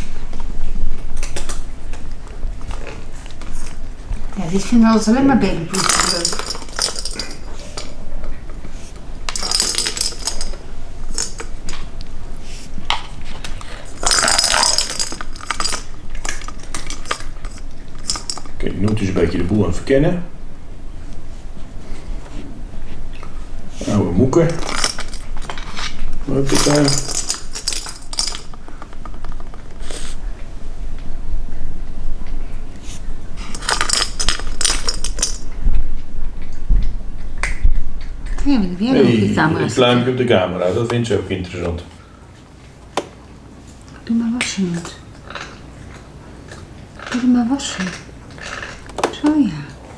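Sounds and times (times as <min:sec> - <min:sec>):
metallic jingling and clinking: 0:03.5 - 0:03.9, 0:05.7 - 0:08.0, 0:09.3 - 0:10.6, 0:14.0 - 0:18.6, 0:24.5 - 0:25.7, 0:26.4 - 0:28.6, 0:33.5 - 0:35.5.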